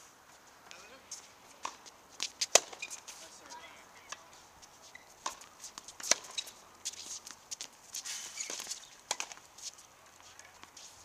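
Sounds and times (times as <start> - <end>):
shoes scuffing on court: 0.0 - 11.0
tennis ball struck by rackets: 1.6 - 2.9, 5.2 - 6.5, 7.6 - 9.4.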